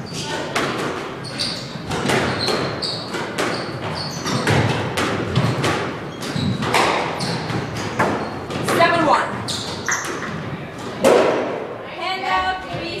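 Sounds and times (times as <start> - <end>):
shoes squeaking on wooden floor: 1.1 - 10.8
squash ball smacks: 11.0 - 11.7.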